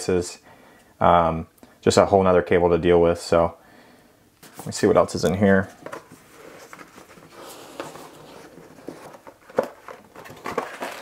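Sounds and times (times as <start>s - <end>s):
cardboard rustling and scraping: 4.4s - 11.0s.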